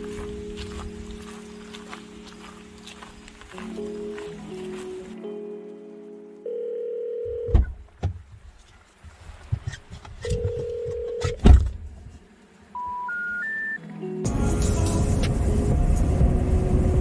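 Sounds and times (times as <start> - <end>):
electronic beep: 12.8 - 13.8
short rising beeps: 12.8 - 13.8.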